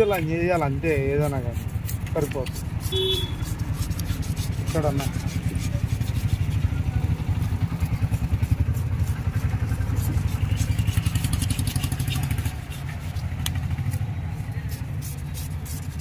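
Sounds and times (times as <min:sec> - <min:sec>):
knife scraping fish scales: 0:00.0 - 0:16.0
motorcycle engine idling: 0:05.1 - 0:15.1.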